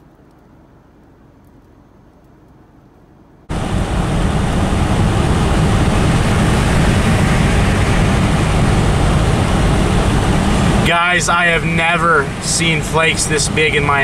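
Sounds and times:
road noise inside car: 0:03.4 - 0:14.0.

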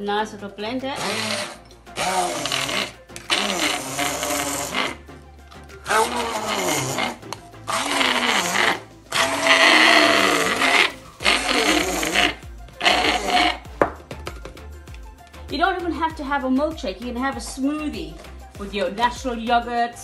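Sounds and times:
immersion blender whirring: 0:00.9 - 0:14.5.

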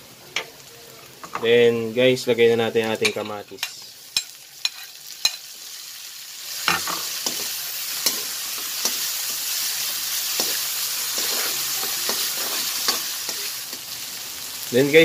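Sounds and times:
vegetables sizzling in oil: 0:00.0 - 0:15.0
metal spoon scraping a wok: 0:03.1 - 0:05.5, 0:10.3 - 0:13.6.

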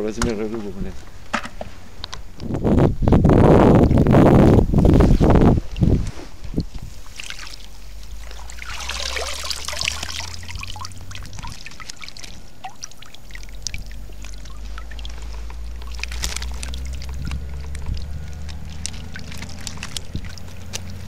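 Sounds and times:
water pouring off a net: 0:04.9 - 0:21.0
water trickling and dripping: 0:05.6 - 0:21.0.

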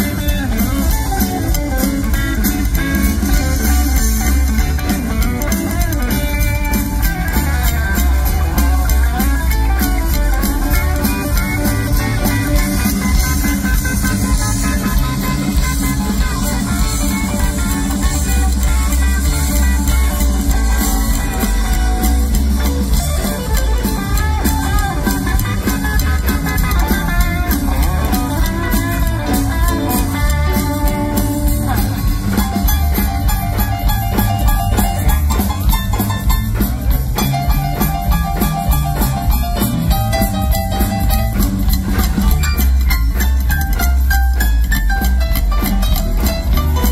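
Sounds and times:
drums: 0:00.0 - 0:46.9
electric guitar lead lines: 0:00.0 - 0:46.9
keyboard: 0:00.0 - 0:46.9
upright bass: 0:00.0 - 0:46.9.

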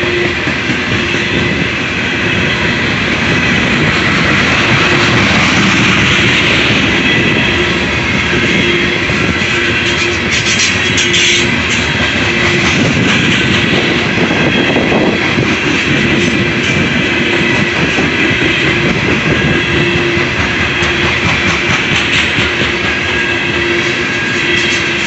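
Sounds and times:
freight train wheels rumbling: 0:00.0 - 0:25.0.

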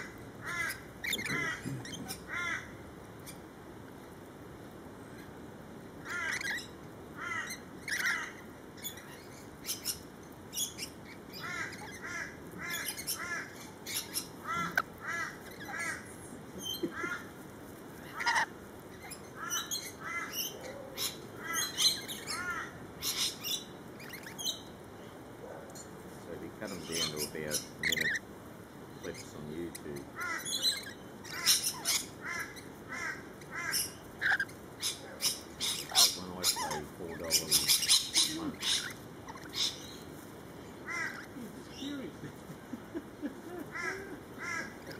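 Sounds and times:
parrots chirping and screeching: 0:00.0 - 0:03.4, 0:06.0 - 0:24.7, 0:26.6 - 0:28.3, 0:28.9 - 0:42.1, 0:43.5 - 0:44.9.

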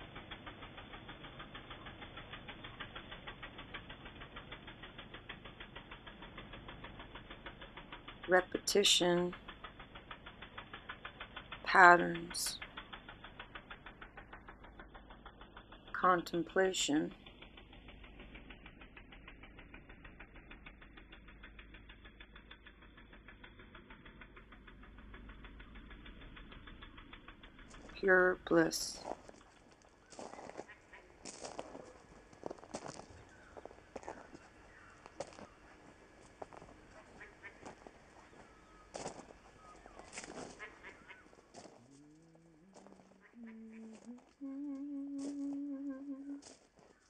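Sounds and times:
rapid ticking: 0:00.0 - 0:47.0
riding lawn mower engine: 0:00.0 - 0:47.0.

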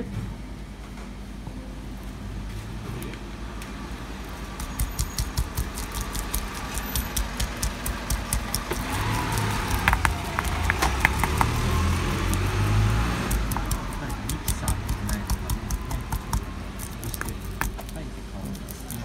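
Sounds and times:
pestle grinding in marble mortar: 0:04.6 - 0:19.0
sharp clicks: 0:04.6 - 0:19.0.

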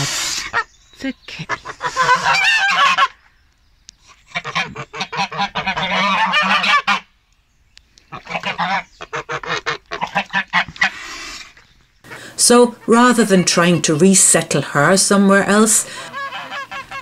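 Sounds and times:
goose honking: 0:01.4 - 0:03.2, 0:04.3 - 0:07.1, 0:08.1 - 0:11.4, 0:14.8 - 0:17.0.

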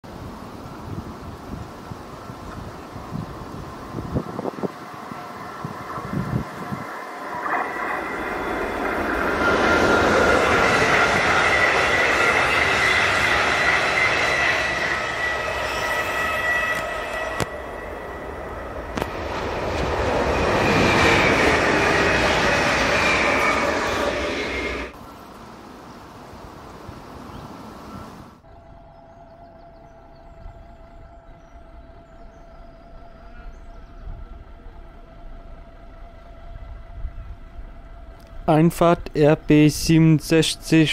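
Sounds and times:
train rolling on track: 0:00.1 - 0:27.5, 0:28.3 - 0:40.9
high-pitched whine: 0:00.8 - 0:25.2, 0:27.9 - 0:40.9
distant engine running: 0:27.8 - 0:39.5.

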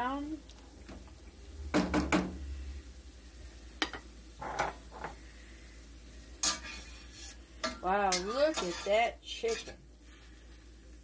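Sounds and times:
metal cookware clattering: 0:06.4 - 0:09.8
soft metal scrapes: 0:06.4 - 0:10.3.

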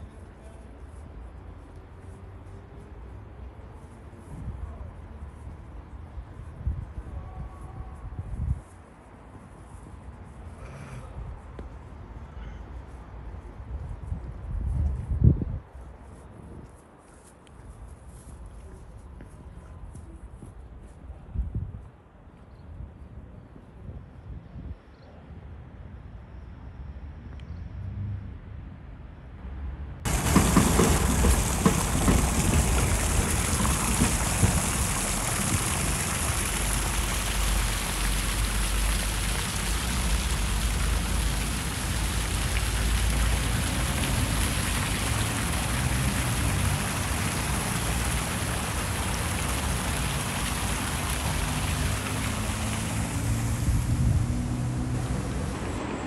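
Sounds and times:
low traffic rumble: 0:27.5 - 0:56.0
fountain water splashing: 0:30.1 - 0:55.4.

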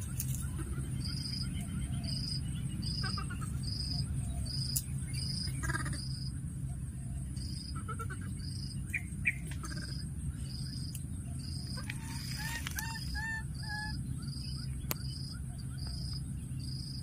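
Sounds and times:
baby monkey calls: 0:00.0 - 0:04.7, 0:05.3 - 0:06.3, 0:07.4 - 0:10.1, 0:11.5 - 0:14.6
insect chirping: 0:00.0 - 0:17.0
low steady rumble: 0:00.0 - 0:17.0.

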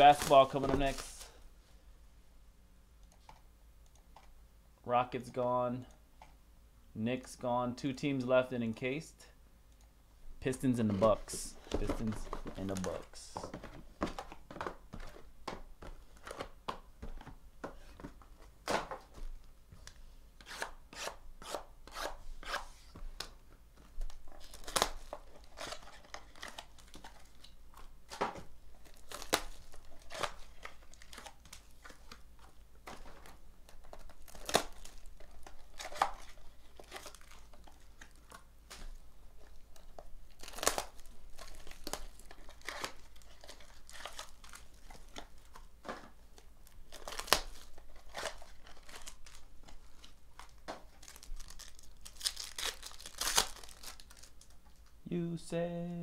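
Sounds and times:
plastic wrap crinkling and tearing: 0:24.0 - 0:54.9.

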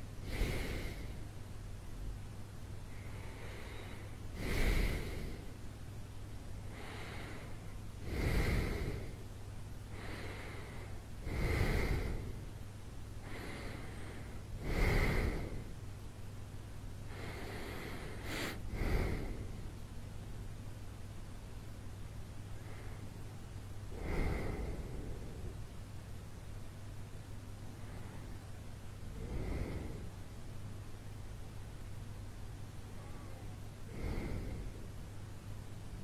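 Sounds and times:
man breathing deeply in sleep: 0:00.0 - 0:01.4, 0:02.9 - 0:05.7, 0:06.6 - 0:12.6, 0:13.2 - 0:15.8, 0:17.1 - 0:19.8, 0:22.6 - 0:23.2, 0:23.9 - 0:25.7, 0:29.1 - 0:30.4, 0:33.8 - 0:35.0
low steady hum: 0:00.0 - 0:36.0.

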